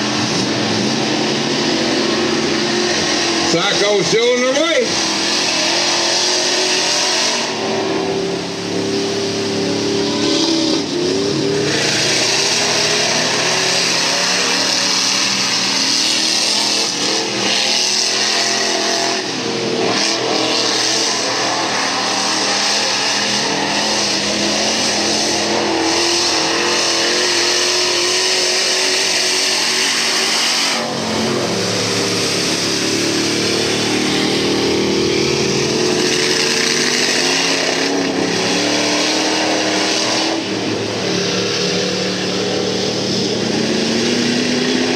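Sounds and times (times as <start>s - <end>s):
truck engines revving hard: 0.0s - 44.9s.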